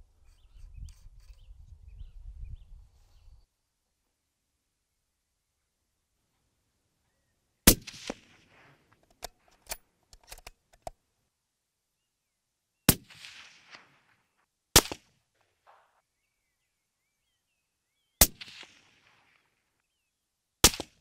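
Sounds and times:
suppressed rifle shots: 7.7s - 9.0s, 12.9s - 14.1s, 14.8s - 15.1s, 18.2s - 19.4s, 20.6s - 21.0s.

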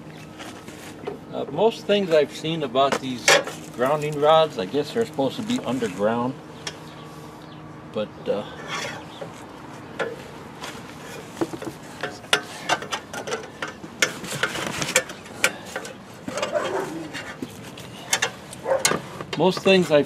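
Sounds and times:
tools and metal parts clicking: 11.5s - 17.4s, 18.0s - 19.6s.

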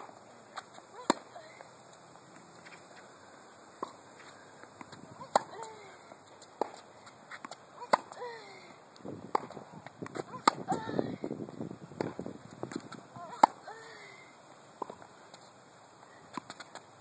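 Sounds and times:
tennis racket hitting ball: 0.6s - 1.4s, 4.8s - 5.8s, 6.6s - 8.3s, 9.3s - 10.9s, 12.0s - 13.7s.

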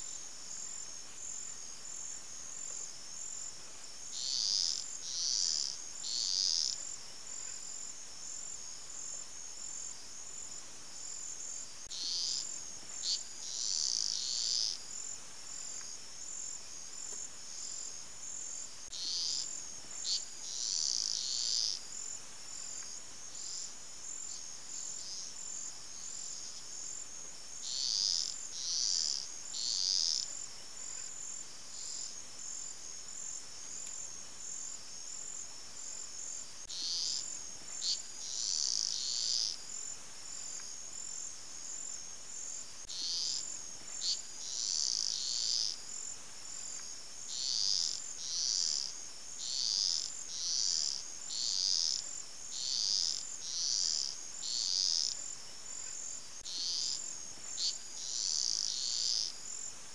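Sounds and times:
louder high insect calls: 4.1s - 7.7s, 11.8s - 15.8s, 18.9s - 23.7s, 27.6s - 30.4s, 36.6s - 40.6s, 42.8s - 59.6s
chorus of calling insects: 4.1s - 7.9s, 11.8s - 15.6s, 18.8s - 27.0s, 27.6s - 30.4s, 36.2s - 40.6s, 42.4s - 46.1s, 47.2s - 59.6s.

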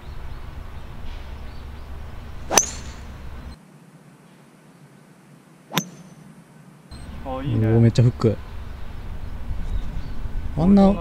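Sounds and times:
golf club striking ball: 2.5s - 3.3s, 5.7s - 6.2s
faint background rumble: 5.0s - 11.0s.

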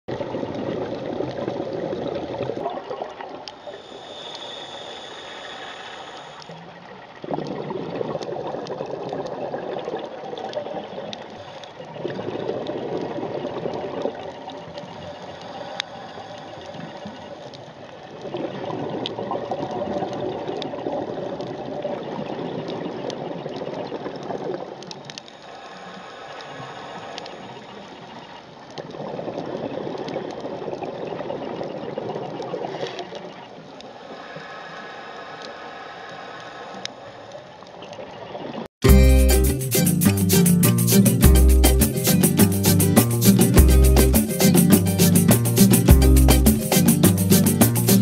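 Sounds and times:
exhaled bubbles rumbling underwater: 0.1s - 4.2s, 6.5s - 25.4s, 26.5s - 34.4s
regulator inhale hiss: 3.6s - 6.6s, 25.3s - 27.9s, 34.0s - 37.2s.

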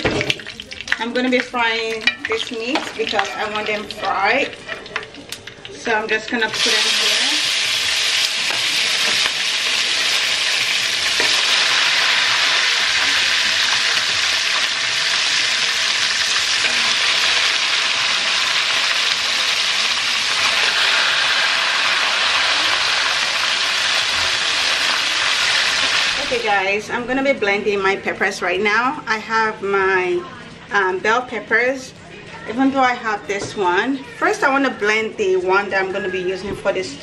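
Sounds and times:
meat sizzling in hot oil: 0.0s - 26.6s.

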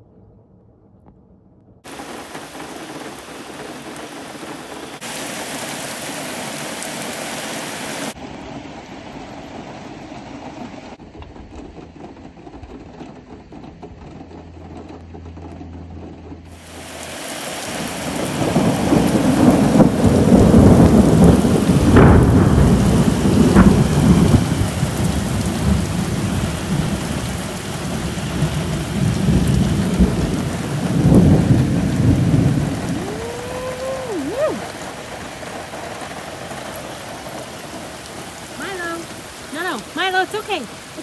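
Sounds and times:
heavy rain: 1.8s - 15.0s, 16.1s - 41.0s
rolling thunder: 16.7s - 38.6s.

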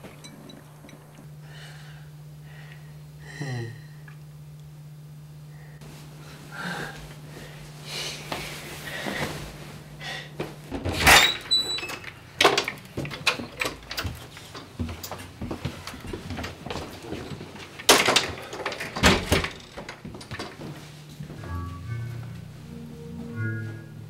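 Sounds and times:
door opening: 18.0s - 20.6s
low hum: 21.0s - 24.0s.

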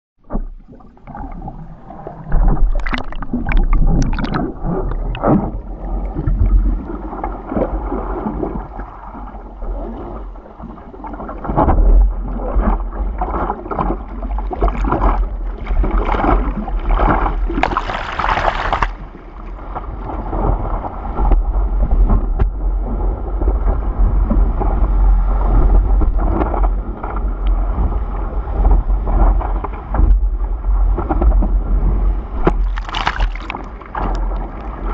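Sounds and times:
sea water splashing: 0.2s - 21.4s, 31.9s - 34.9s
low rumble of water: 0.2s - 34.9s.

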